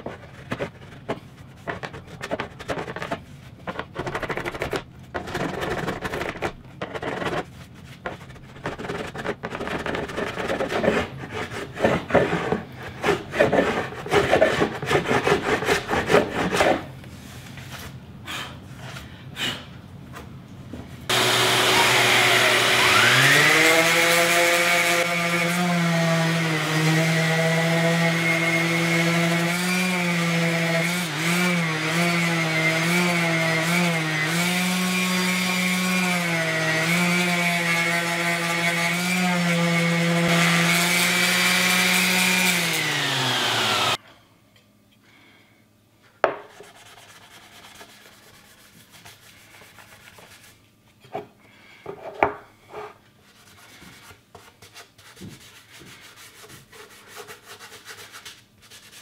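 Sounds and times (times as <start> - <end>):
orbit sander motor whine: 21.1 - 25.6, 39.8 - 44.0.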